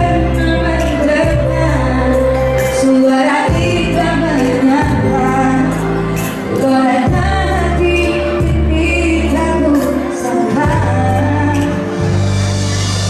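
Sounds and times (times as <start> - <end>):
held bass chords: 0.0 - 9.8, 10.6 - 13.0
woman singing: 0.0 - 12.2.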